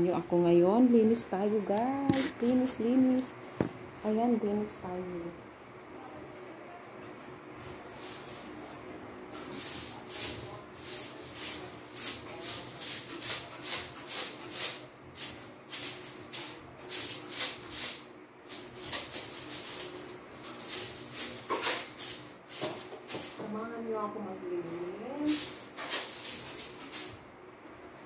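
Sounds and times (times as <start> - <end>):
broom swishing: 7.6 - 8.8, 9.4 - 23.4, 24.7 - 27.2.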